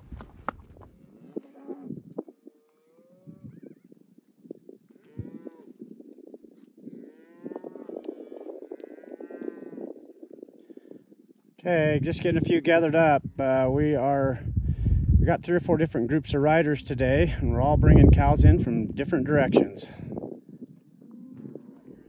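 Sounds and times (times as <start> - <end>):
cattle mooing: 6.9 - 9.9.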